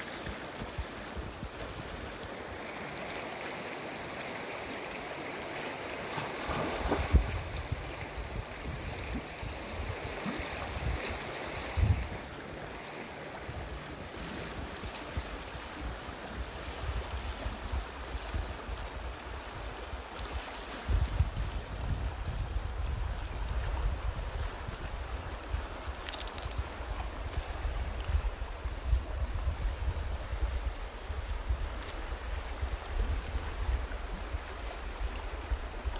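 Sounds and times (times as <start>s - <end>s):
river water rippling: 0.0s - 35.9s
wind buffeting microphone: 6.5s - 12.4s, 14.4s - 35.9s.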